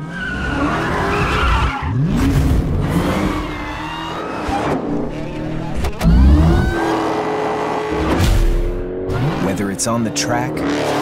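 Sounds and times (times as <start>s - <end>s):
tyres squealing and skidding: 0.0s - 8.0s
car engine revving: 0.0s - 11.0s.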